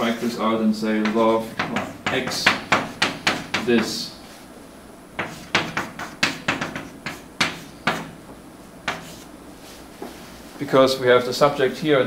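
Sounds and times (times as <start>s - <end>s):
chalk tapping and scratching: 1.0s - 4.1s, 5.2s - 10.3s.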